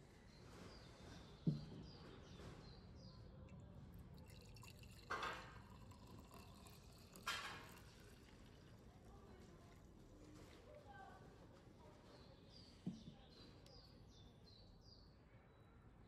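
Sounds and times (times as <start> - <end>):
coffee pouring into a mug: 3.5 - 10.1
dull knock: 12.9 - 13.2.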